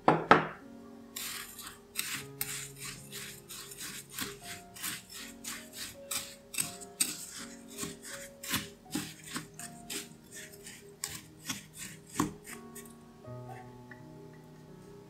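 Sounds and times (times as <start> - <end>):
soft background music: 0.0 - 15.0
wooden spoon scraping ceramic bowl: 1.2 - 13.0.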